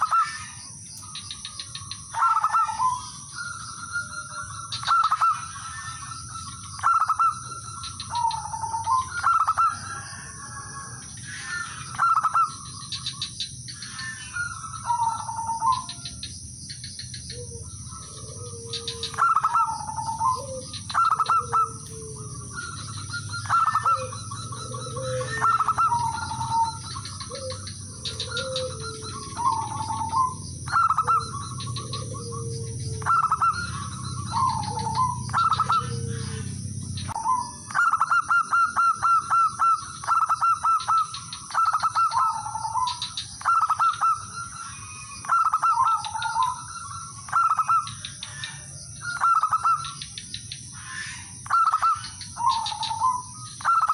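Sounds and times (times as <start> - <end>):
dove cooing: 0.0 - 53.9.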